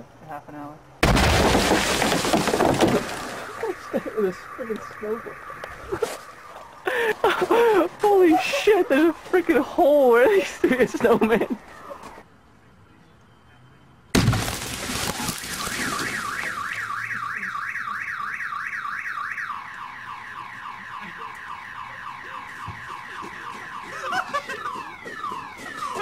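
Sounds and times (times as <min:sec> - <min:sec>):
car alarm warbling: 0:02.0 - 0:10.6, 0:15.0 - 0:26.0.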